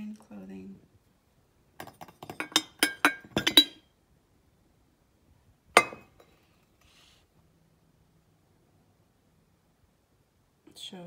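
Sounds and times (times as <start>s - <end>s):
ceramic teapot clinking: 1.8s - 3.8s, 5.8s - 6.3s.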